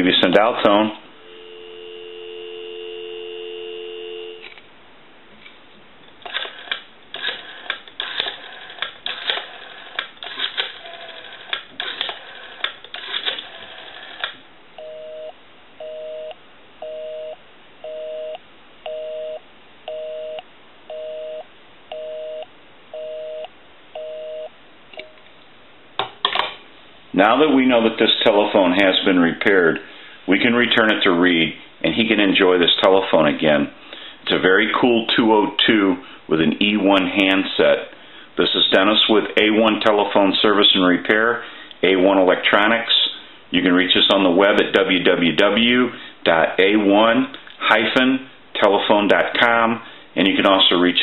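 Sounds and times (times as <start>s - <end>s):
busy signal beeps: 1.2s - 4.5s, 14.8s - 25.2s
telephone dial tone: 1.2s - 4.6s, 6.3s - 22.4s
rotary dial clicking: 6.3s - 14.4s.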